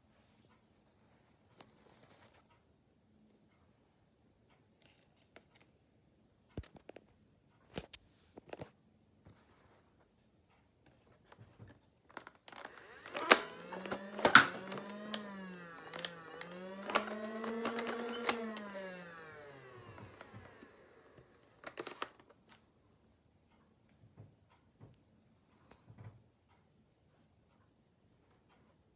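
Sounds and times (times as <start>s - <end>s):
sharp plastic clicks: 12.1s - 22.6s
small electric motor whining: 12.5s - 22.0s.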